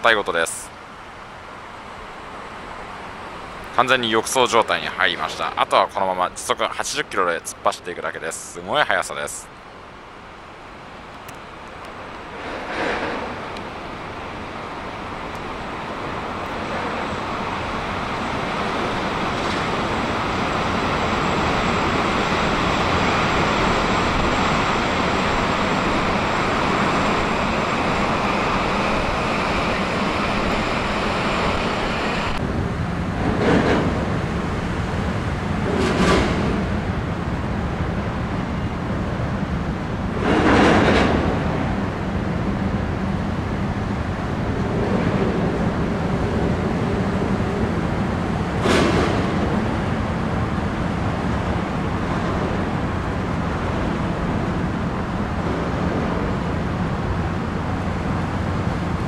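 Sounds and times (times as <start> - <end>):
turbine roar: 0.0 - 59.0
thin high whine: 3.5 - 32.4
wind gusts on microphone: 11.0 - 59.0.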